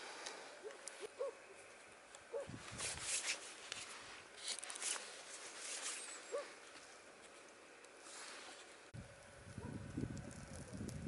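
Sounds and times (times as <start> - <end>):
campfire embers crackling: 0.0 - 11.0
sausages sizzling on fire: 9.0 - 11.0.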